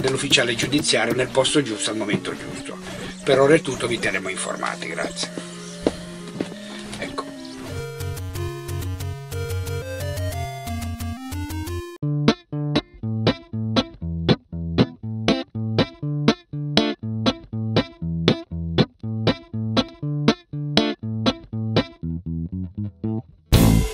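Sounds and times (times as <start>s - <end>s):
rising electronic notes: 0.0s - 12.0s
plucked guitar and bass line: 0.0s - 23.9s.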